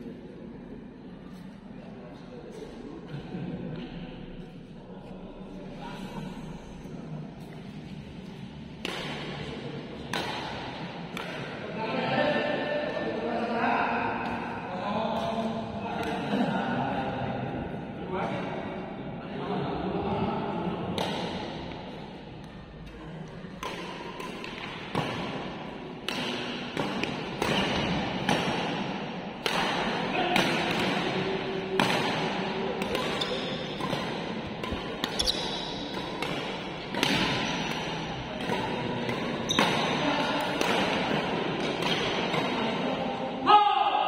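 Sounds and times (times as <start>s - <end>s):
rackets hitting shuttlecock: 8.7s - 11.6s, 20.9s - 43.0s
shoes squeaking on court: 35.1s - 35.9s.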